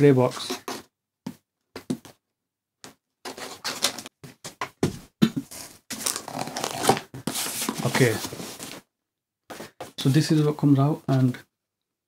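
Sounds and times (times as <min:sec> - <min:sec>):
cardboard scraping and rustling: 0:03.3 - 0:04.1, 0:05.4 - 0:08.8
cardboard flaps rustling: 0:04.8 - 0:08.8.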